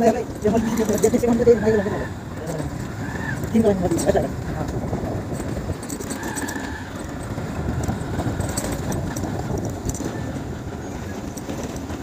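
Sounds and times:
vehicle rumble: 0.0s - 12.0s
clicks and rattles: 2.6s - 10.3s.

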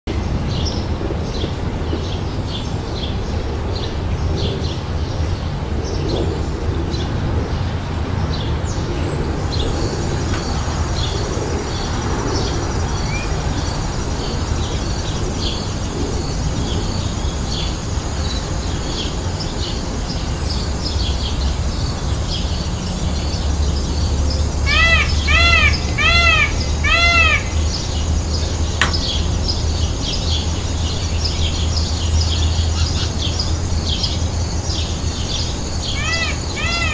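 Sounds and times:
small birds chirping: 8.7s - 36.9s
peafowl calling: 24.6s - 27.9s, 35.9s - 36.9s.

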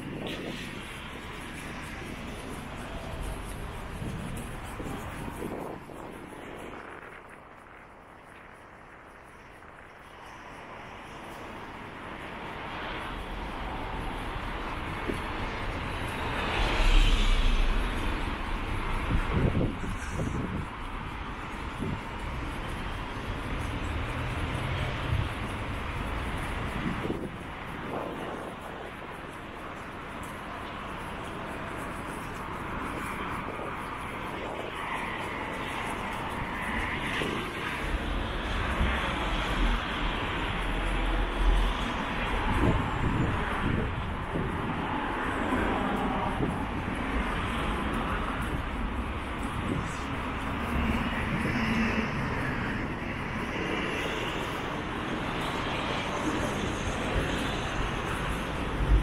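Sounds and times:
city road traffic: 0.0s - 59.0s
engine roar: 12.4s - 29.1s.

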